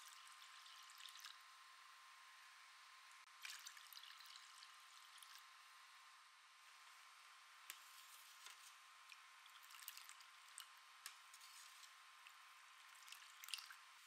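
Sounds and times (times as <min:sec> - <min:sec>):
tea pouring into saucepan: 0:00.0 - 0:01.4, 0:03.3 - 0:05.5, 0:09.1 - 0:14.0
thin steady tone: 0:00.0 - 0:14.0.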